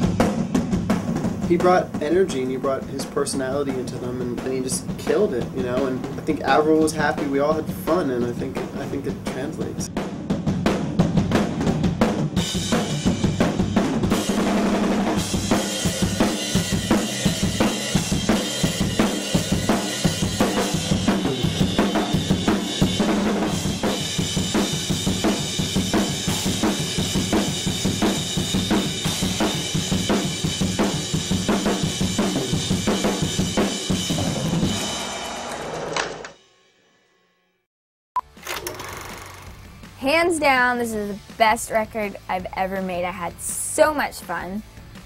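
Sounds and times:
rock drum kit fast beat: 0:00.0 - 0:35.9.

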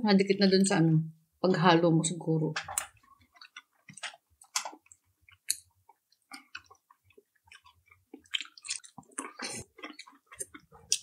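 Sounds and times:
people chewing food: 0:02.6 - 0:11.0.

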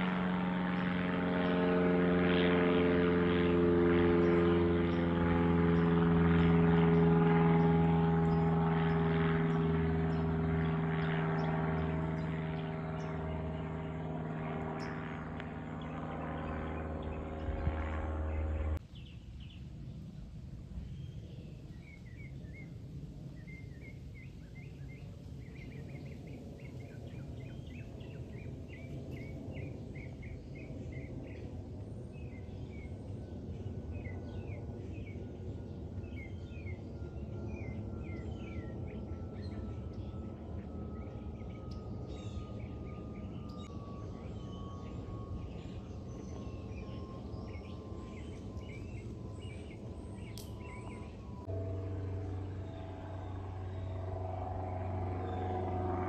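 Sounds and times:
steady low rumble: 0:03.2 - 0:24.2, 0:45.0 - 0:56.0
small birds chirping: 0:04.0 - 0:20.0, 0:20.8 - 0:56.0.

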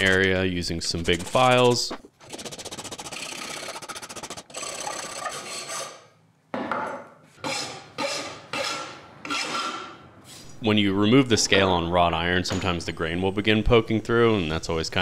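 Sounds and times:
file rasping on iron: 0:01.1 - 0:06.1, 0:07.4 - 0:09.9.

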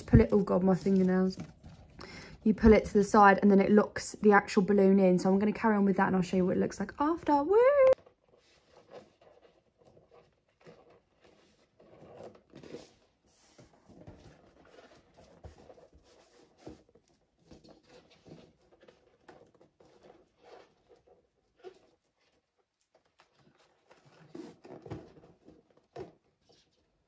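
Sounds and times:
balloons rubbing and rustling: 0:07.5 - 0:27.0.

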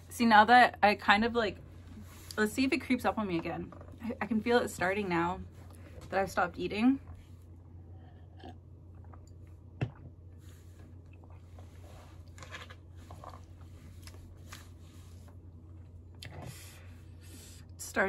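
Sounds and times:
steady low hum: 0:00.0 - 0:18.0
person sipping and swallowing: 0:07.7 - 0:12.4.

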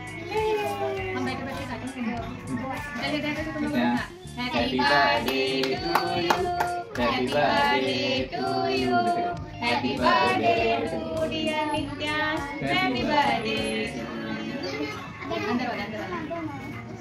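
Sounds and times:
people singing together: 0:03.0 - 0:15.2
hands clapping in time: 0:05.3 - 0:07.1.

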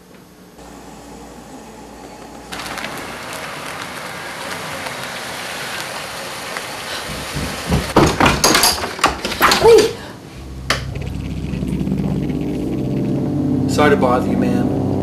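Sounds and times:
knocking and rattling at door: 0:07.1 - 0:09.7.

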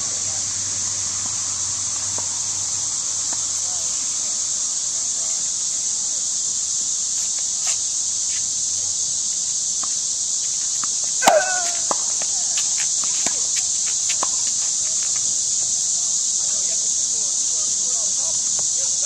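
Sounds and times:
high-pitched insect chorus: 0:00.0 - 0:19.0
tennis balls struck and bouncing: 0:10.8 - 0:13.3.

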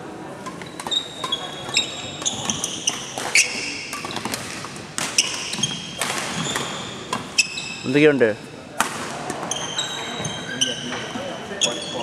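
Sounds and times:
racket hitting shuttlecock: 0:00.4 - 0:07.5, 0:08.8 - 0:09.6
shoes squeaking on wooden floor: 0:00.6 - 0:04.4, 0:05.0 - 0:08.1, 0:09.3 - 0:12.0.

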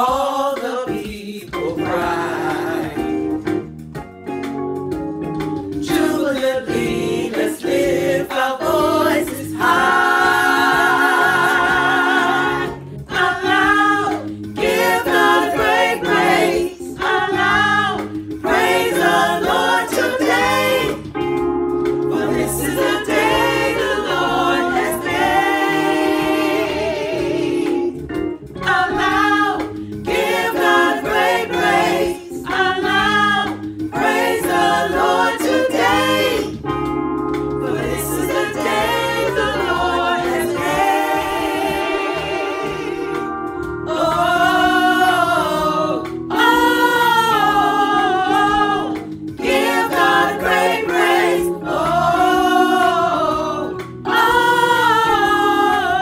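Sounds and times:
women singing hymn in harmony: 0:00.0 - 0:03.2, 0:05.8 - 0:21.1, 0:22.1 - 0:28.0, 0:28.6 - 0:36.6, 0:37.6 - 0:56.0.

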